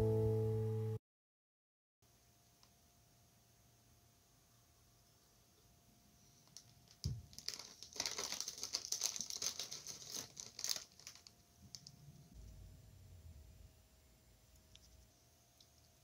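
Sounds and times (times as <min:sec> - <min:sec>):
plastic wrapper crinkling: 0:06.4 - 0:12.0.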